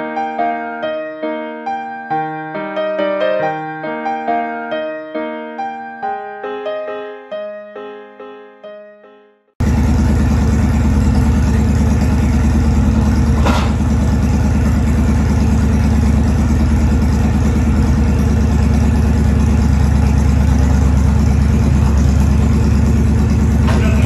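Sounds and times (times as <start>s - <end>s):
motorcycle engine idling: 9.6s - 24.0s.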